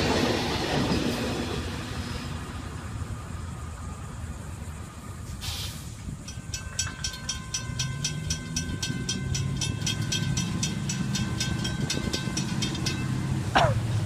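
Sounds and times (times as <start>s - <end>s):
low road traffic rumble: 0.0s - 14.0s
crossing warning bell ringing: 6.1s - 14.0s.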